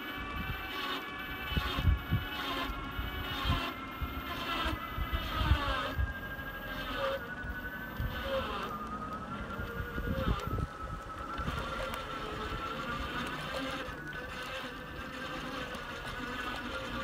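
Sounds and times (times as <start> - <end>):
electric drive whine: 0.0 - 17.0
low road rumble: 0.0 - 17.0
wind thumps on microphone: 9.5 - 12.0.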